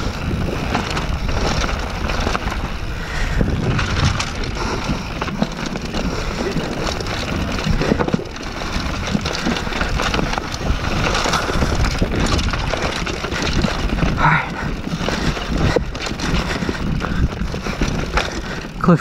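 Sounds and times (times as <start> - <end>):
bike clattering over rocks: 0.0 - 19.0
bike tyres rumbling on dirt: 0.0 - 19.0
wind buffeting microphone: 0.0 - 19.0.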